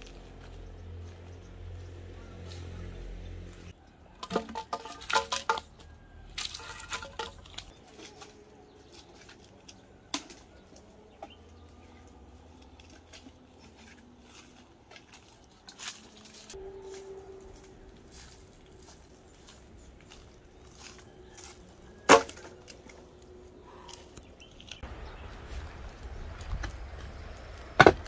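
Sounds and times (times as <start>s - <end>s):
firewood sticks knocking: 4.2s - 11.7s, 21.9s - 23.1s
chickens clucking and squawking: 16.5s - 21.9s.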